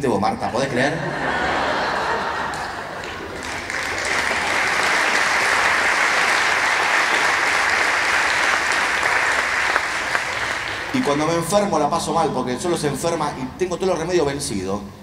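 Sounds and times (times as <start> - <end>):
audience applauding: 1.8 - 11.6.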